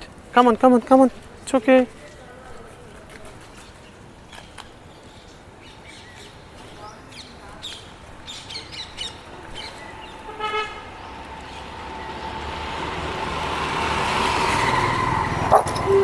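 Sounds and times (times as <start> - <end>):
road vehicle approaching: 0.0 - 16.0
vehicle horn toot: 10.3 - 10.9.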